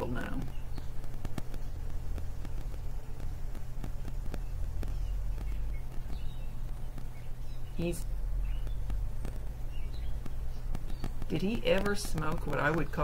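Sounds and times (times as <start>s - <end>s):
crackling clicks: 0.0s - 13.0s
low electrical hum: 0.0s - 13.0s.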